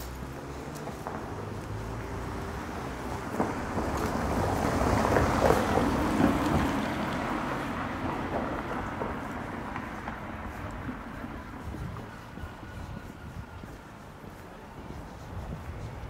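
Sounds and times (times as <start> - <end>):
car passing by: 0.0 - 16.0.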